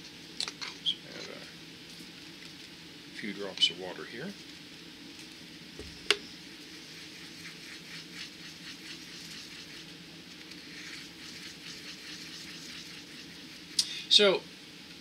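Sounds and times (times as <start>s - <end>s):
paintbrush scratchy strokes: 6.6s - 13.8s.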